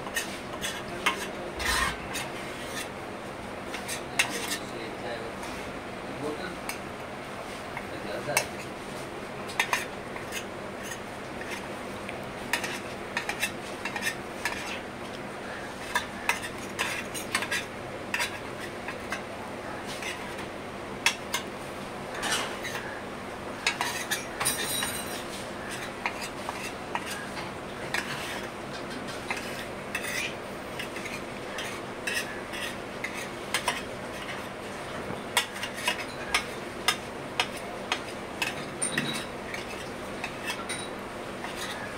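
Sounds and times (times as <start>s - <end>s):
metal spoon scraping a plate: 0.0s - 2.9s, 3.7s - 4.7s, 12.5s - 14.8s, 15.8s - 19.2s, 22.2s - 22.9s, 23.6s - 27.3s, 27.9s - 28.5s, 29.1s - 34.5s, 35.4s - 41.9s
steady background hum: 0.0s - 41.9s.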